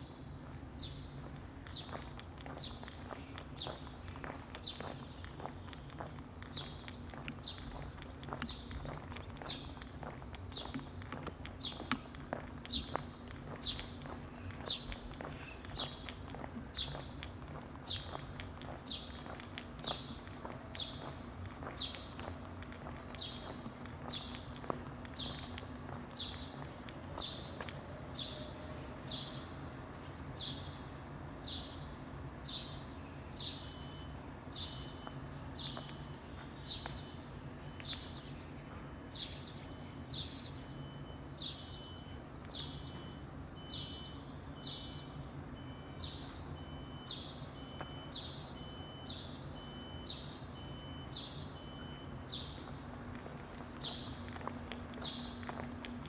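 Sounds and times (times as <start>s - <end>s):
low background hum: 0.0s - 56.0s
footsteps scuffing: 1.1s - 27.9s, 52.6s - 56.0s.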